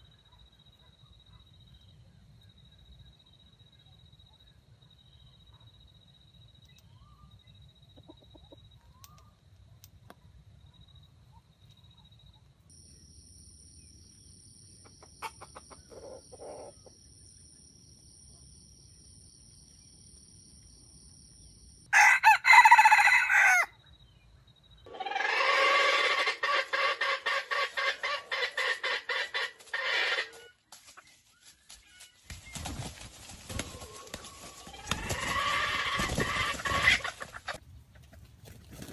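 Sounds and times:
roosters crowing: 0:21.9 - 0:23.7, 0:24.9 - 0:30.6, 0:33.5 - 0:37.6.

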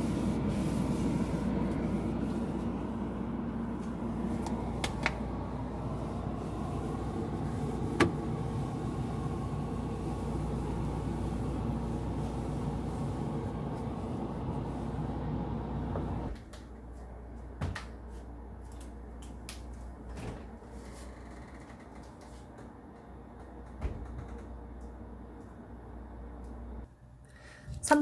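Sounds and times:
cloth rubbing plastic: 0:00.0 - 0:15.2.

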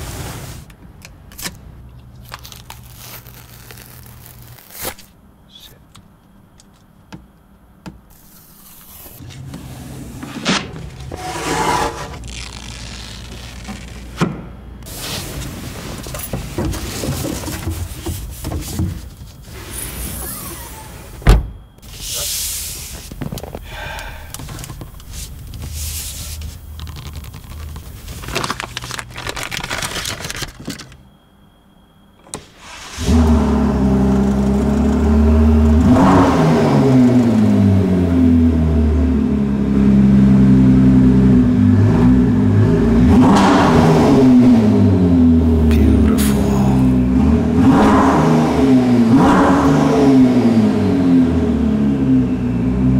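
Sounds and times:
plastic film peeling and crinkling: 0:01.3 - 0:05.2, 0:12.1 - 0:14.2, 0:24.4 - 0:31.0
car engine starting and revving: 0:32.9 - 0:52.9.

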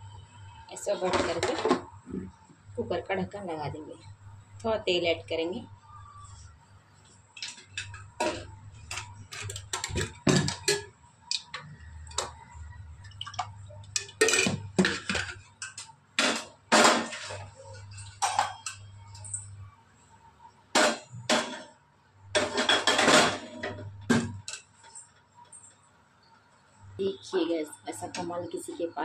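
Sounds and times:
kitchen utensils clattering: 0:07.4 - 0:11.0, 0:14.0 - 0:18.9, 0:22.4 - 0:24.6.

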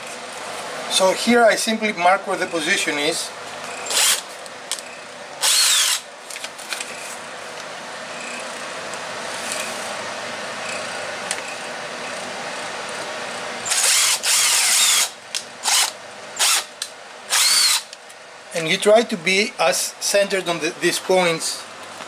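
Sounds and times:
cordless drill boring into wood: 0:03.8 - 0:04.2, 0:05.4 - 0:06.0, 0:13.6 - 0:16.7, 0:17.3 - 0:17.9.

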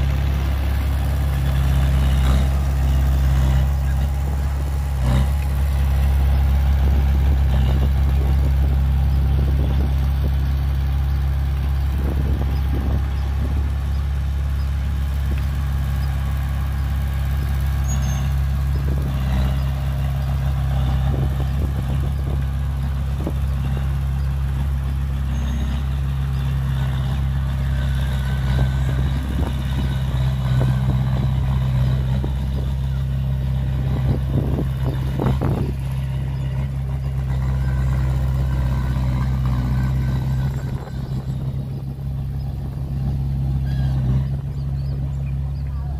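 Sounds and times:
bulldozer diesel engine running: 0:00.0 - 0:45.9.

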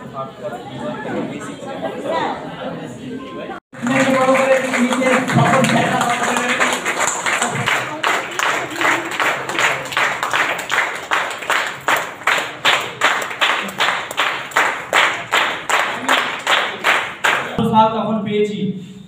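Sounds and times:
audience clapping in rhythm: 0:03.7 - 0:17.6.

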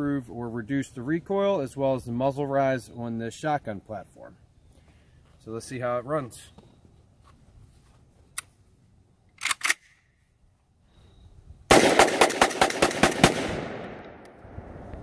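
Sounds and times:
metallic clicks of a shotgun: 0:09.3 - 0:10.1
rapid shotgun shots: 0:11.7 - 0:14.2.

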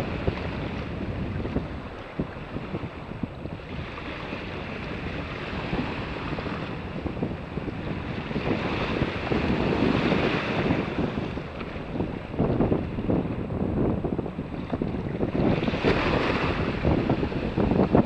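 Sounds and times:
wind buffeting microphone: 0:00.0 - 0:18.0
small waves washing: 0:14.4 - 0:18.0.

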